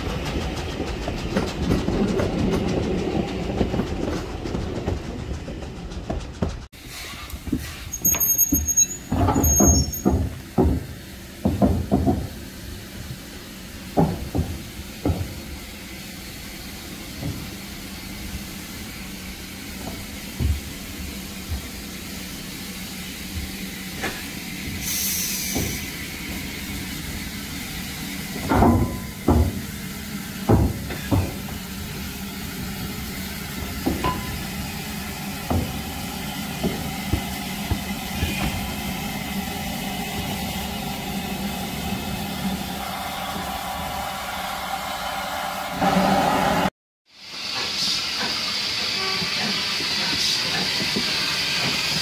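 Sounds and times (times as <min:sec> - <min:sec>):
locomotive steam hissing: 0:00.0 - 0:52.0
sharp metallic knocks: 0:33.8 - 0:34.5.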